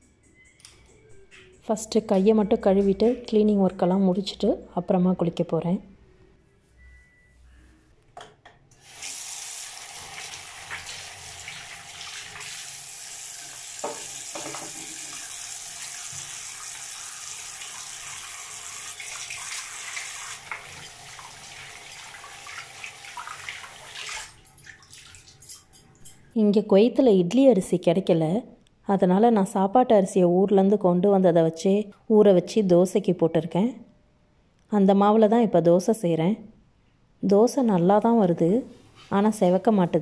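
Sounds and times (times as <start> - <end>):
tap water running into basin: 8.8 - 25.8
hands washing under water: 19.0 - 25.7.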